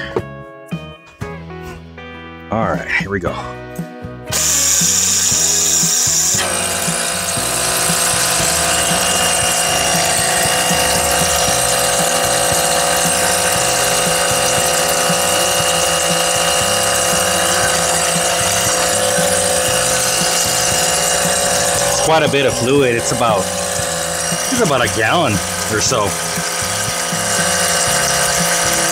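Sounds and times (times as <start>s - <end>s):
electric pump running: 4.3s - 28.9s.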